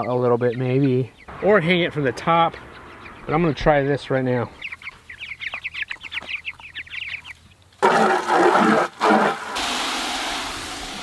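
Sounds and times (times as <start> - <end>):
chicks peeping: 0.0 - 8.8
hose water rushing into bucket: 7.8 - 11.0.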